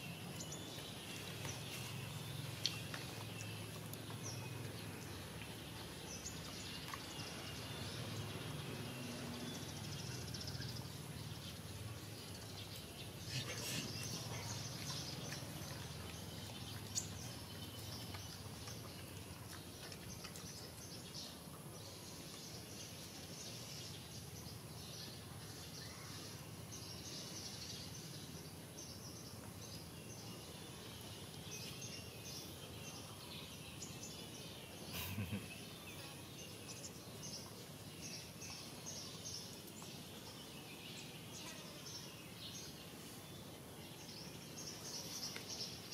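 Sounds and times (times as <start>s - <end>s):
steady high hiss: 7.3s - 15.2s, 34.8s - 35.7s.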